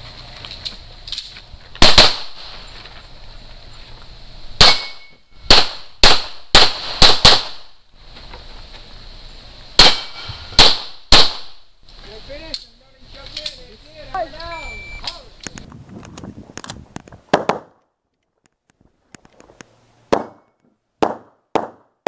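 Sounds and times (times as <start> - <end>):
pistol shots echoing: 1.8 - 2.5, 4.6 - 7.7, 9.8 - 11.6.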